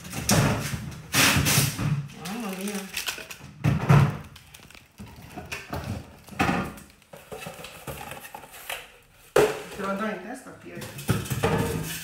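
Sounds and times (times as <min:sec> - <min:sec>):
knocks and thuds: 0:03.6 - 0:04.3.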